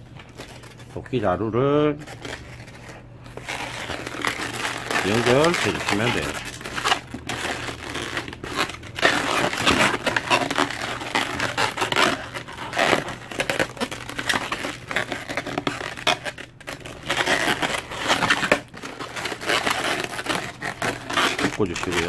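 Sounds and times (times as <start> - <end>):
balloons rubbing and squeaking: 0.0 - 22.0.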